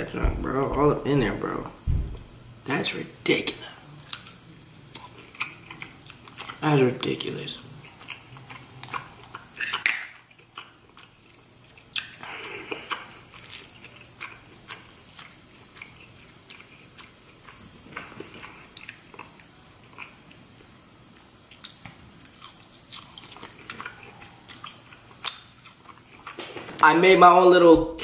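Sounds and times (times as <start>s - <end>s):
close-mouthed chewing: 4.0s - 20.7s, 21.5s - 26.4s
wet smacks and lip clicks: 24.5s - 26.4s.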